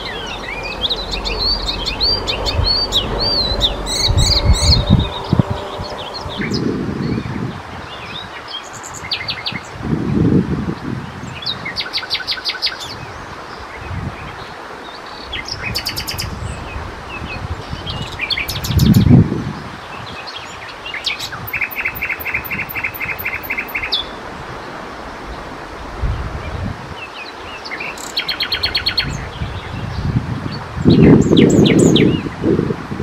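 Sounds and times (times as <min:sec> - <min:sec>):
low rumbles: 0:00.0 - 0:07.7
nightingale singing: 0:00.0 - 0:09.6, 0:20.0 - 0:24.2, 0:27.2 - 0:30.1, 0:30.9 - 0:32.3.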